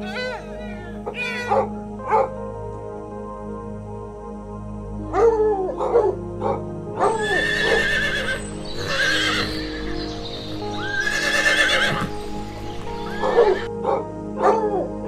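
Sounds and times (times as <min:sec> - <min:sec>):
background music with held notes: 0:00.0 - 0:15.0
dog bark: 0:01.3 - 0:02.3, 0:05.1 - 0:07.2, 0:13.4 - 0:14.9
horse whinnying: 0:07.0 - 0:10.0, 0:10.8 - 0:12.3, 0:13.0 - 0:13.7.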